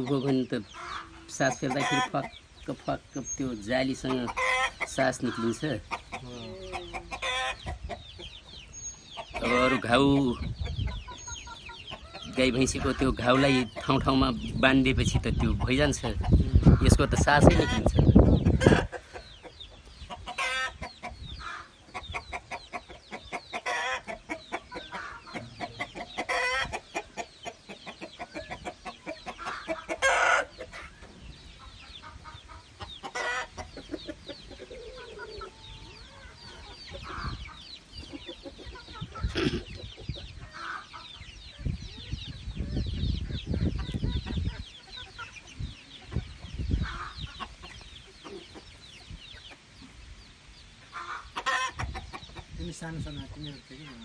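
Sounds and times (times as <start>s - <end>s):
chickens clucking: 0.0s - 54.0s.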